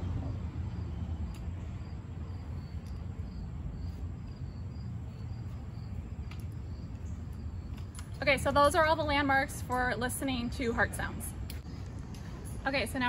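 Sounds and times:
low steady rumble: 0.0s - 13.0s
cricket chirping: 0.6s - 9.2s.

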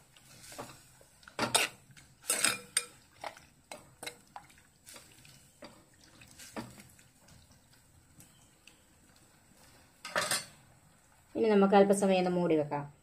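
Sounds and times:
spoon scraping clay pot: 1.4s - 3.0s.

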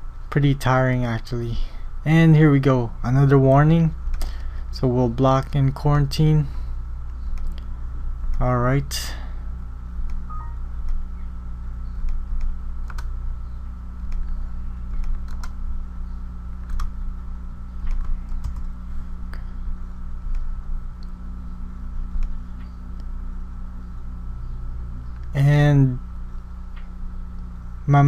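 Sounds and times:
steady low hum: 0.0s - 28.0s
keyboard and mouse clicks: 12.0s - 13.1s, 14.9s - 15.6s, 16.6s - 16.9s, 17.8s - 18.7s.

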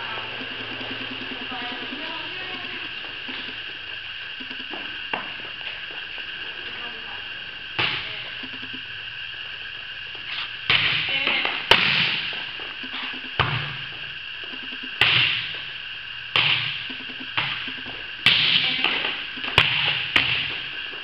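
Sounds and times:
steady hum: 0.0s - 21.0s
volleyball smacks echoing: 18.2s - 20.6s.

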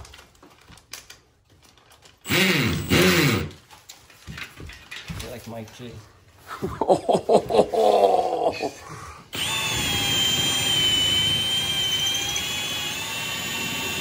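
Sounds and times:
drill boring into wall: 2.2s - 3.6s, 9.3s - 14.0s.

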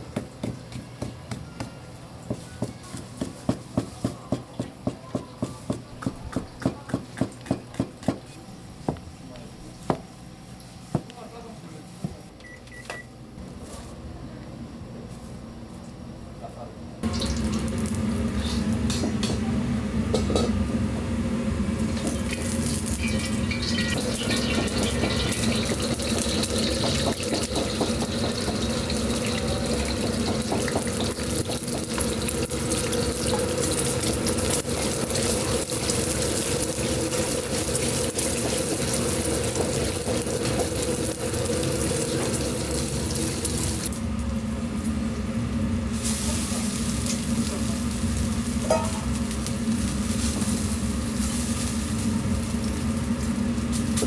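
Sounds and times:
gas burner humming: 0.0s - 54.0s
eggs sizzling in hot oil: 17.0s - 18.9s, 21.8s - 43.9s.

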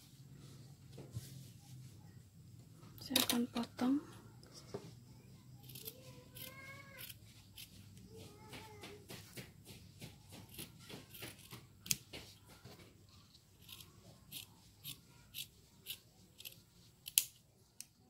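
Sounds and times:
scissors snipping felt: 5.6s - 8.0s.

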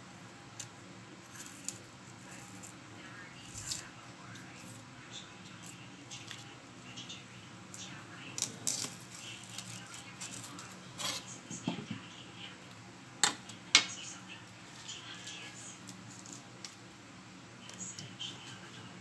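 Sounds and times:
onion skin peeling: 8.4s - 11.3s.

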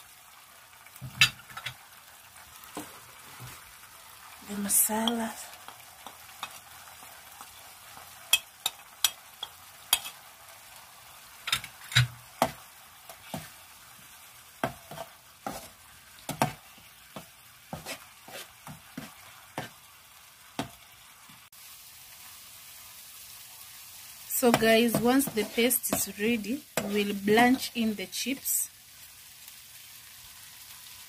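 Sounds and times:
paste sizzling in a frying pan: 0.0s - 31.0s
metal spoon scraping a pan: 6.0s - 6.6s, 8.3s - 10.3s, 14.6s - 16.6s, 17.7s - 19.8s, 24.5s - 26.2s, 26.8s - 27.8s.

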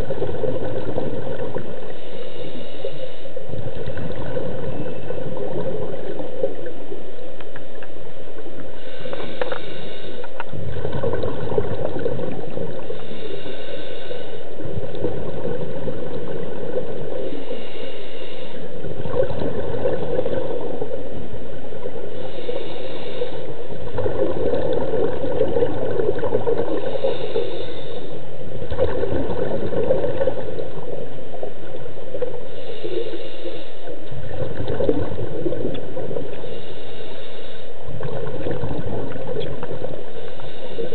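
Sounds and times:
gurgling rush of bubbles: 0.0s - 2.0s, 3.4s - 7.1s, 10.4s - 13.2s, 14.4s - 17.6s, 18.7s - 27.6s, 28.4s - 36.4s, 37.8s - 40.9s
scuba breathing through regulator: 1.9s - 5.2s, 8.8s - 15.9s, 17.1s - 20.7s, 22.0s - 30.9s, 32.4s - 40.9s.

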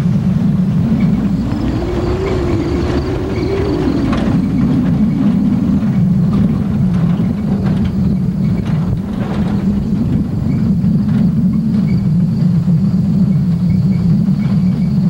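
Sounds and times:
pickup truck engine running: 0.0s - 15.0s
truck jolting clatters: 0.7s - 12.6s.

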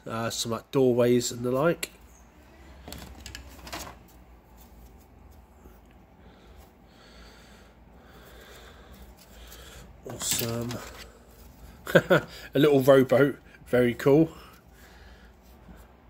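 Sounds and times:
plastic rubbing and rustling: 9.0s - 11.8s.

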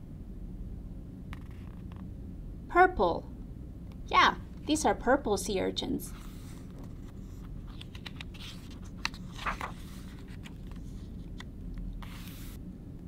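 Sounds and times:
low steady hum: 0.0s - 13.0s
paper page rustling: 6.1s - 12.6s
page swish: 6.2s - 11.0s, 12.0s - 12.6s.

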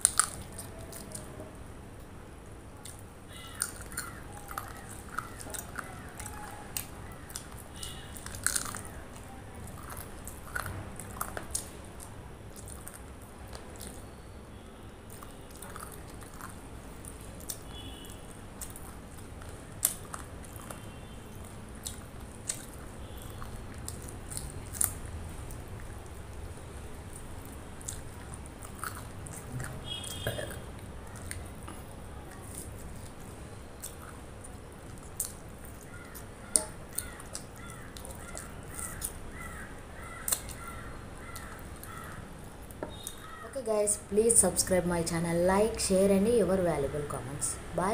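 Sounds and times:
chewing and lip smacks: 0.0s - 1.4s, 2.8s - 14.2s, 14.9s - 43.4s
bird calling: 3.3s - 8.2s, 42.9s - 43.6s.

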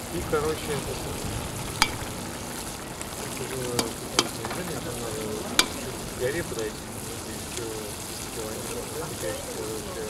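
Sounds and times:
rice and water bubbling and sizzling: 0.0s - 10.0s
metal skimmer stirring rice: 1.8s - 2.3s, 3.4s - 4.7s, 5.6s - 6.0s.

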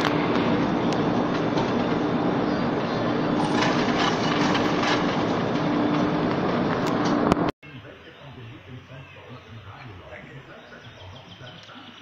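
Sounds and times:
sled rolling on metal slide: 0.0s - 7.5s.

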